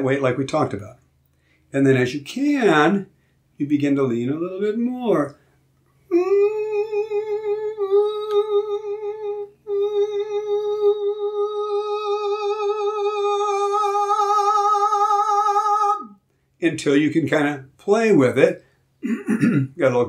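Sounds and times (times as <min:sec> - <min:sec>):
quick breath: 0:01.3 - 0:01.7
man singing high note: 0:06.1 - 0:16.2.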